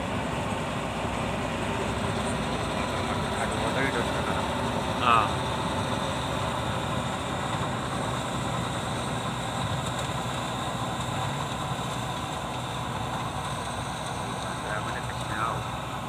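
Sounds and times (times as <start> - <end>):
combine harvester running: 0.0 - 16.0.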